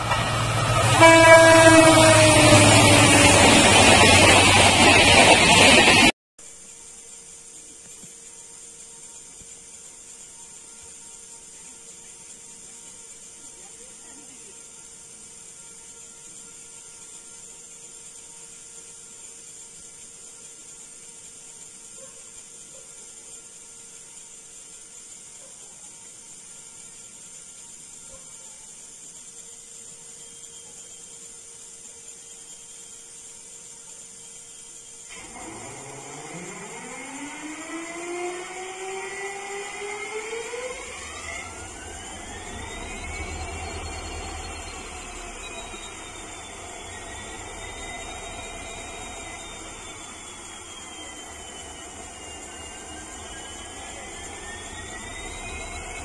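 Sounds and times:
high whine: 0.0 - 12.7, 33.8 - 56.0
high even hiss: 40.6 - 56.0
locomotive engine rumble: 40.8 - 56.0.

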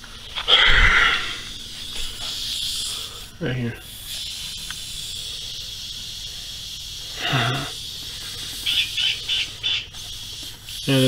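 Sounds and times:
night insects chorus: 0.0 - 11.0
man murmuring: 7.2 - 7.8.

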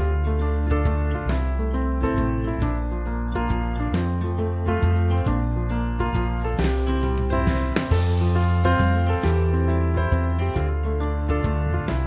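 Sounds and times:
deep held bass: 0.0 - 12.0.

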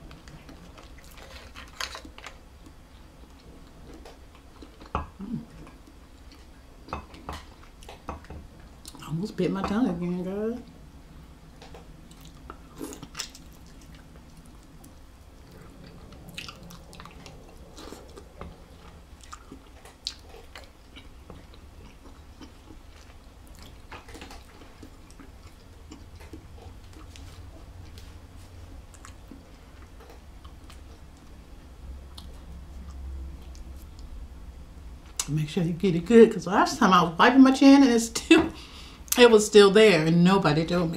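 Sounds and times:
low steady hum: 0.0 - 40.9
person chewing: 11.6 - 31.4, 32.0 - 34.1.

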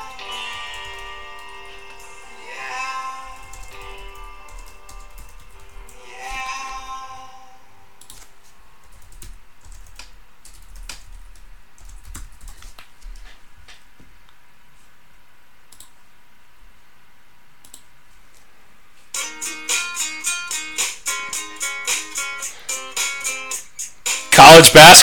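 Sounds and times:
computer keyboard typing: 0.4 - 1.6, 3.3 - 6.0, 8.0 - 13.2.

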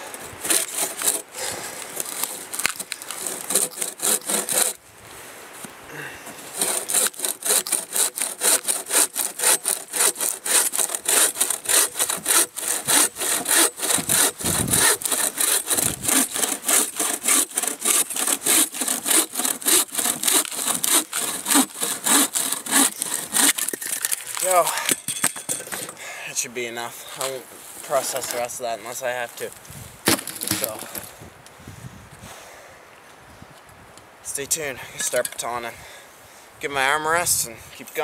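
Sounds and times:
bow saw cutting log: 0.0 - 4.8, 6.3 - 24.7.

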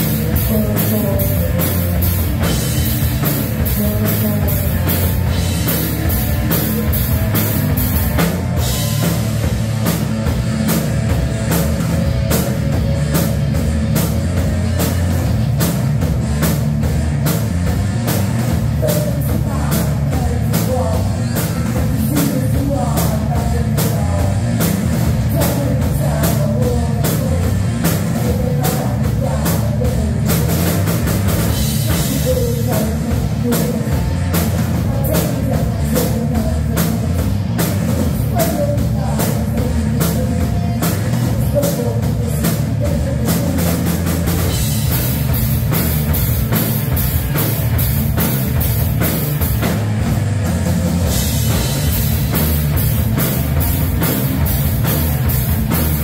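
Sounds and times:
person singing: 0.0 - 9.4, 18.6 - 30.9, 31.5 - 45.2
drum and cymbal hits: 0.0 - 19.0, 42.4 - 56.0
bass guitar: 0.0 - 56.0
distorted electric guitars: 0.0 - 56.0.

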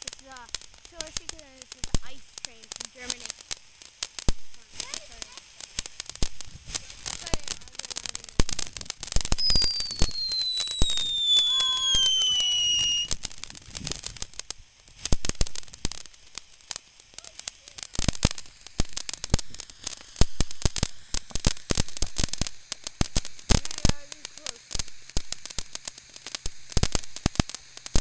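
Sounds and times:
firework crackling pops: 0.0 - 28.0
firework whistle gliding down: 9.3 - 14.2.

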